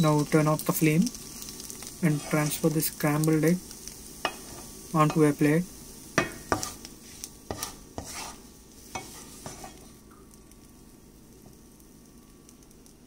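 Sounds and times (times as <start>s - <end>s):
wooden spatula scraping a pan: 1.2s - 2.8s, 4.2s - 5.3s, 6.2s - 9.9s.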